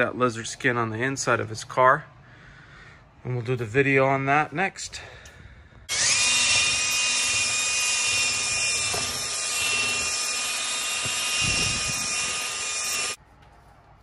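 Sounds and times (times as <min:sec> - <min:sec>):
power drill motor whine: 0:05.9 - 0:13.2.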